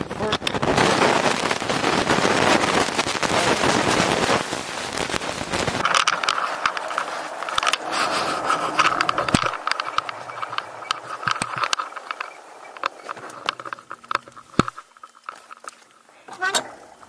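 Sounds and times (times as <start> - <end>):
electric bike motor whine: 5.3 - 17.0
camera handling noise: 5.8 - 15.7
bike rattles and clicks: 5.8 - 17.0.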